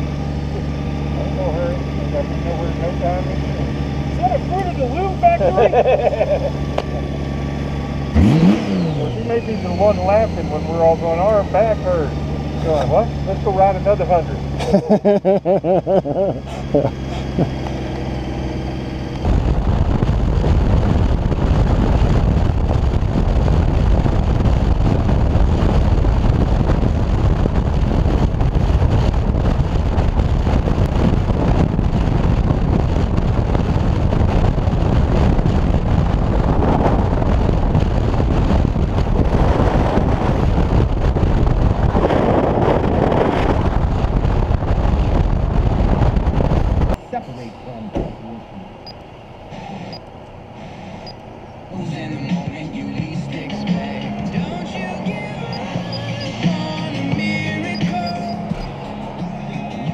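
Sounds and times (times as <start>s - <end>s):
wind roaring over microphone: 16.4s - 47.0s.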